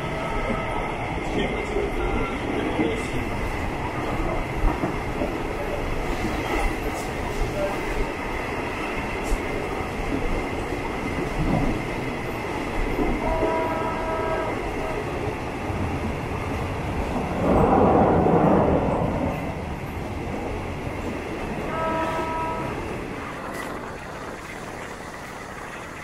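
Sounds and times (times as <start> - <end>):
train rumbling and rattling: 0.0 - 26.0
train horn chord: 13.2 - 15.0, 21.7 - 22.8.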